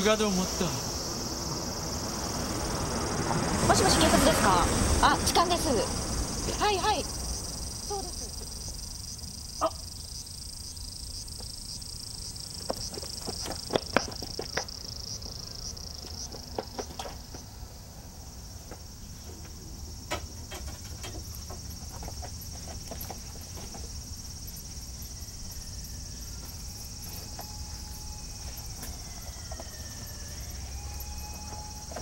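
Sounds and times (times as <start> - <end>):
cicadas droning: 0.0 - 32.0
sharp taps and knocks: 12.6 - 15.4.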